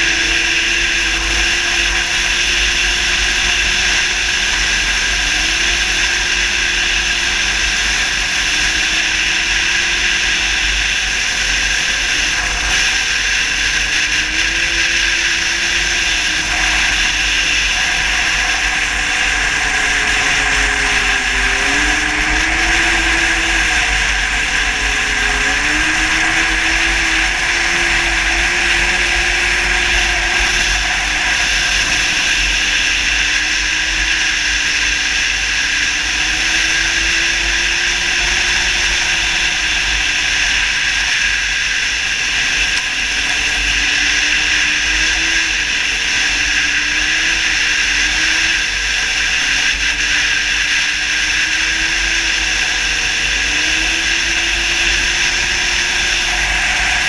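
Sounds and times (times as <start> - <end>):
snowmobile engine running hard: 0.0 - 57.0
wind and track noise: 0.0 - 57.0.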